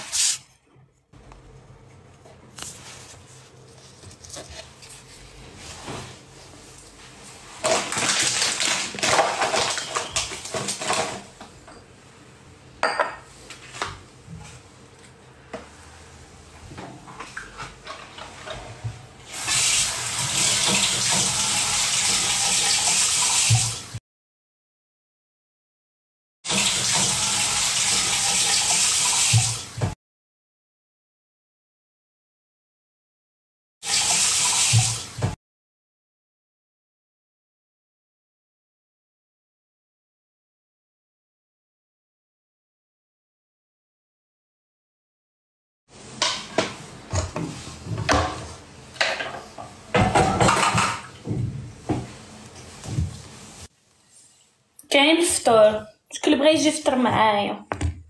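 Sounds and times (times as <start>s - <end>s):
water running from a tap: 19.2s - 24.0s, 26.5s - 30.0s, 33.8s - 35.4s.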